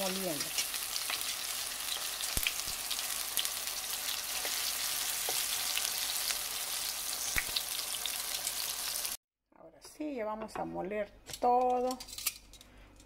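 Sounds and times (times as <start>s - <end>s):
tomatoes frying in oil: 0.0s - 9.2s.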